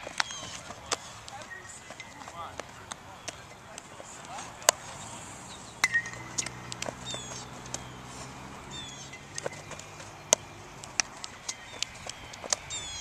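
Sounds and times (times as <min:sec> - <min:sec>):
baseball bat hitting ball: 0:05.8 - 0:07.8, 0:09.1 - 0:12.7.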